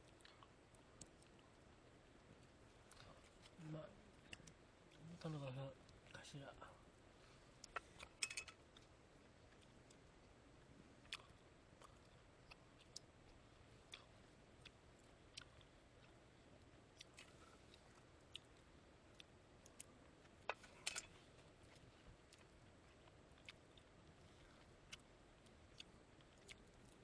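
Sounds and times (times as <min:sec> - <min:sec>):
person chewing: 0:00.1 - 0:01.6, 0:11.0 - 0:16.3, 0:16.9 - 0:27.0.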